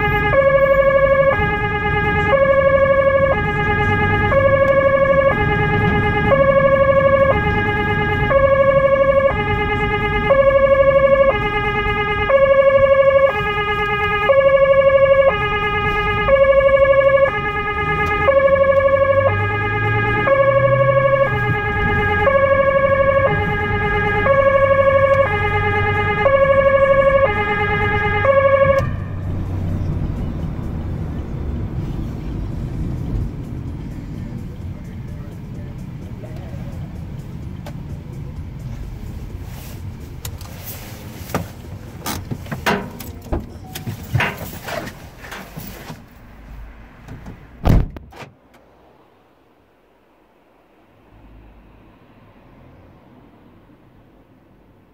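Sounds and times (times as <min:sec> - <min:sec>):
two-tone siren: 0:00.0 - 0:31.6
car engine and road noise: 0:00.0 - 0:54.9.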